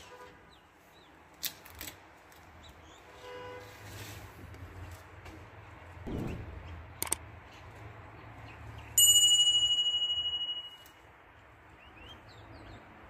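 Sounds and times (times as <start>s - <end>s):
notification bell chime: 9.0s - 10.9s.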